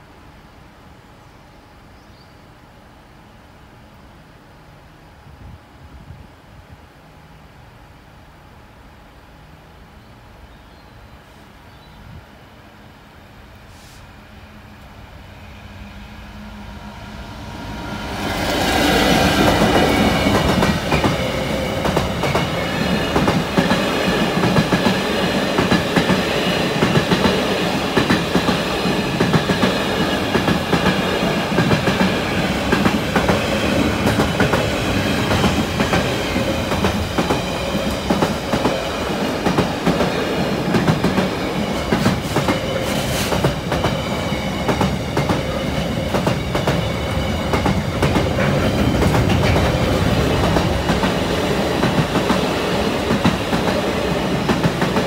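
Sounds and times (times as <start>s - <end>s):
diesel locomotive engine: 12.9s - 55.0s
train wheels clattering on rails: 18.3s - 55.0s.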